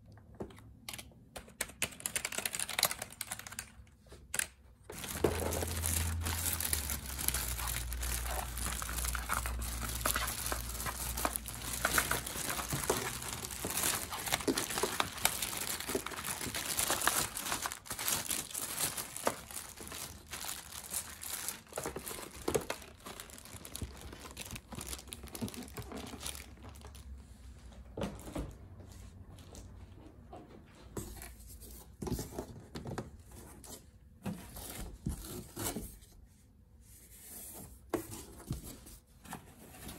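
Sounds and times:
plastic bag crinkling: 4.9 - 27.2.

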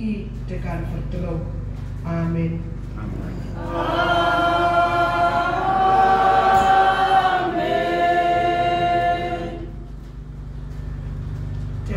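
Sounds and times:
congregation singing a cappella: 3.5 - 10.2.

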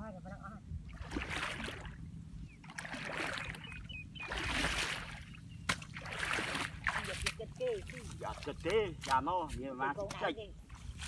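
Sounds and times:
hoe chopping wet mud: 4.4 - 9.3.

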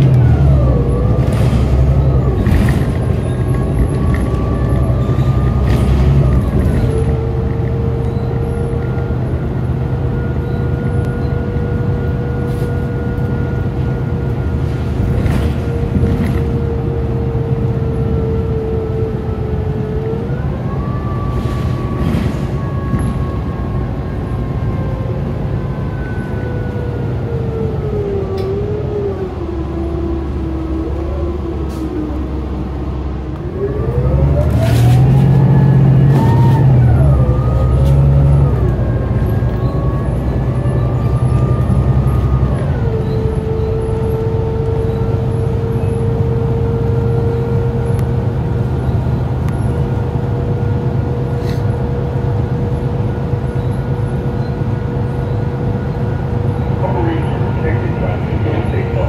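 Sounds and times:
bus engine drone from inside: 0.0 - 59.0
drivetrain whine: 22.4 - 59.0.

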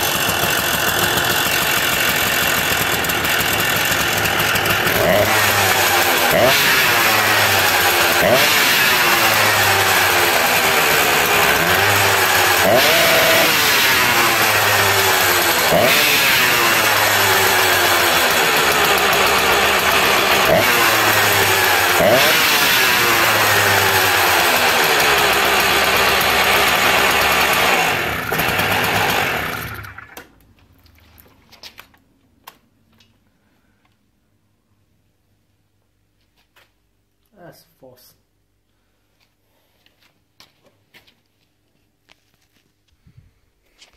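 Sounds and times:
small engine revving: 0.0 - 30.3.

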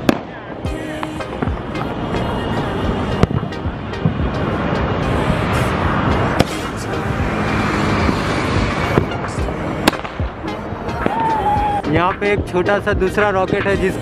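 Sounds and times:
fireworks bangs: 0.0 - 0.4.

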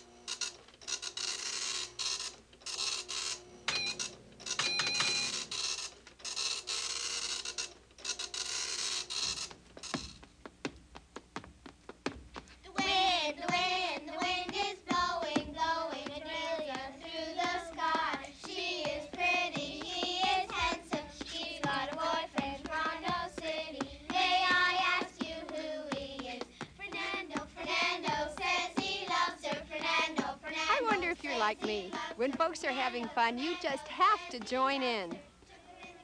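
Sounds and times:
sharp rhythmic slaps: 0.3 - 36.0
girls singing a rhyme: 12.6 - 36.0.

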